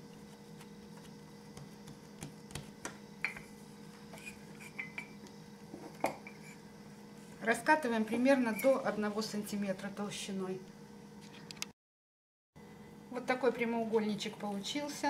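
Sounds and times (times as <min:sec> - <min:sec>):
faint steady hum: 0:00.0 - 0:11.7, 0:12.6 - 0:15.0.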